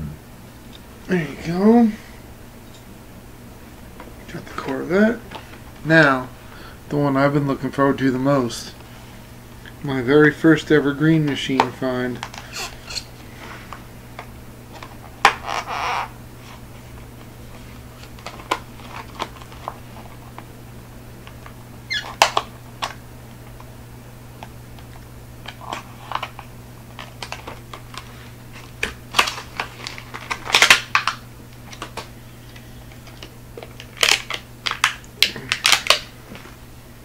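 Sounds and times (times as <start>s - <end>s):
plastic package being torn open: 28.7s - 32.1s, 33.0s - 36.1s.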